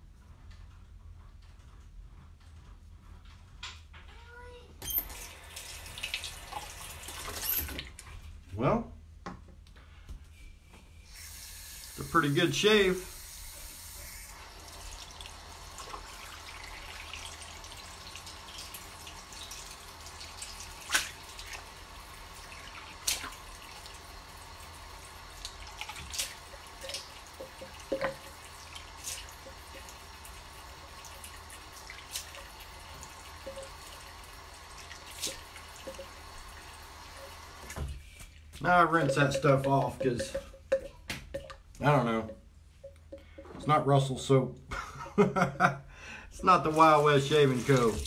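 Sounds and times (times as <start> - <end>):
sink tap running: 4.8 - 8.0, 11.1 - 38.0, 38.6 - 44.2, 46.4 - 48.0
water splashes and clicks: 20.2 - 21.6, 22.6 - 23.4, 25.4 - 30.4.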